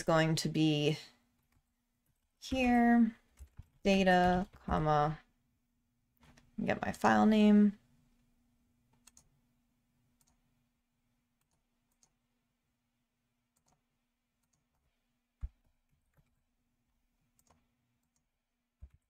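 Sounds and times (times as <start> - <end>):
computer mouse clicks: 8.9 - 9.3, 10.2 - 10.4, 11.4 - 12.2, 13.5 - 16.4, 17.3 - 19.0.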